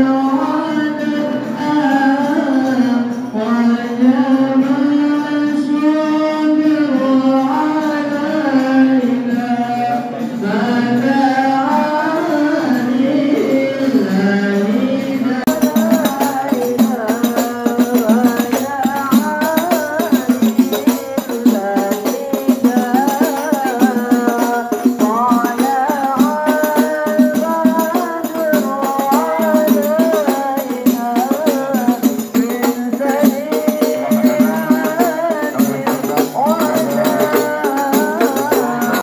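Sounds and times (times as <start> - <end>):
voices singing devotional melody: 0.0 - 39.0
frame drums beating fast rhythm: 15.4 - 39.0.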